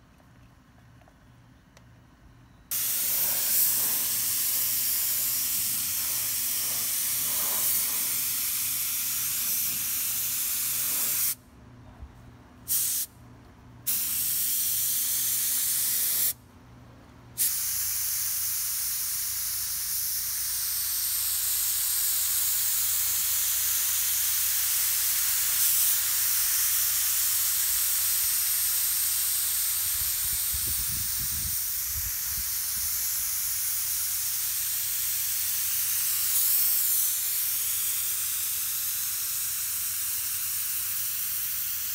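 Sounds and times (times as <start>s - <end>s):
paint spray gun hissing: 2.7s - 11.4s, 12.7s - 13.1s, 13.9s - 16.4s, 17.4s - 41.9s.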